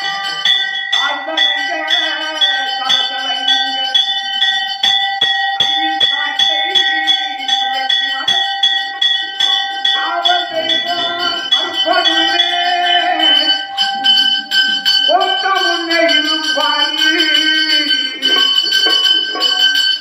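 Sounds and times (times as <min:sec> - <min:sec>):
temple bell ringing: 0:00.0 - 0:20.0
person's voice: 0:05.6 - 0:20.0.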